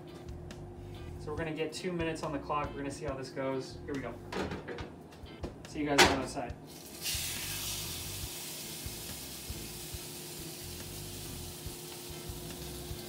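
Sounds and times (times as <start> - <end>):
steak sizzling in a skillet: 6.7 - 13.0.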